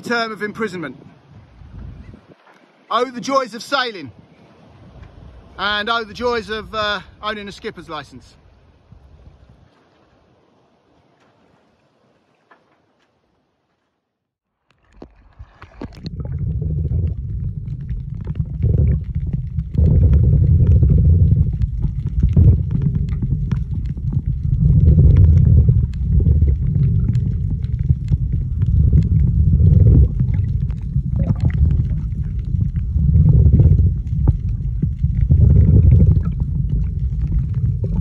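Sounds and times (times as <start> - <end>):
muffled underwater rumble: 14.9 - 38.0.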